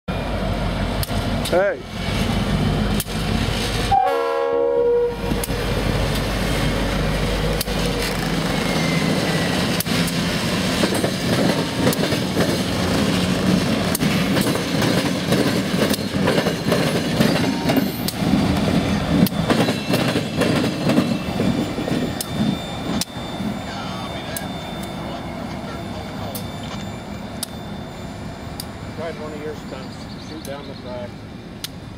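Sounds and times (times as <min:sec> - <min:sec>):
diesel locomotive engines rumbling: 0:00.1 - 0:31.9
locomotive horn: 0:03.8 - 0:05.5
wheels clicking over rails: 0:09.6 - 0:23.5.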